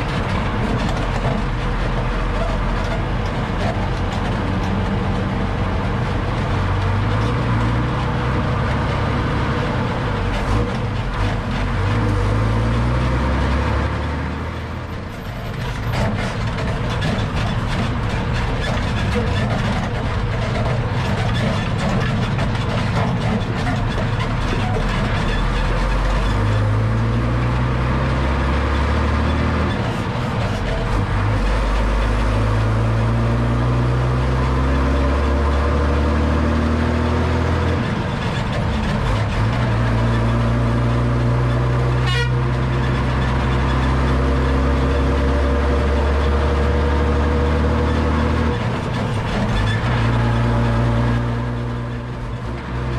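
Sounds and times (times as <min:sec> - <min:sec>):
truck drivetrain and tyres rumbling: 0:00.0 - 0:52.9.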